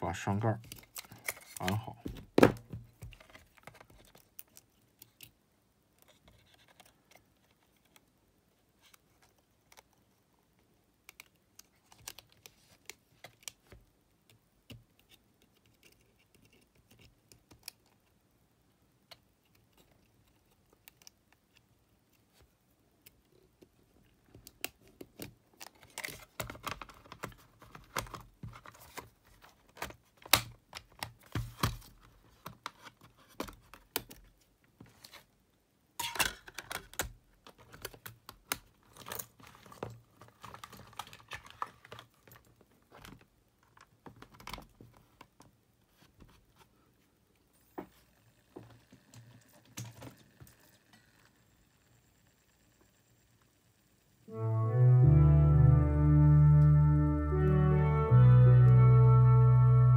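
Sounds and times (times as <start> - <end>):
plastic clicks and clatter: 23.1 - 35.1, 36.0 - 45.5.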